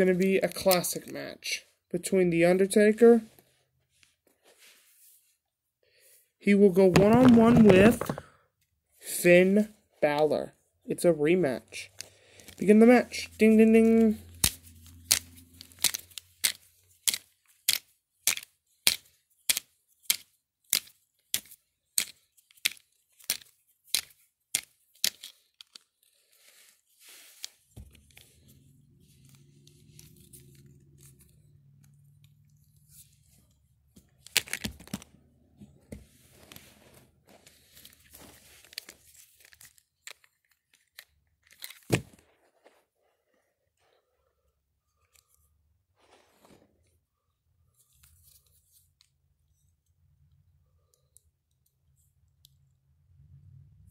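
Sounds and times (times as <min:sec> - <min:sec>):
handling noise on microphone: 0:06.8 - 0:08.3
plastic figures clacking together: 0:06.8 - 0:08.3, 0:14.4 - 0:26.0.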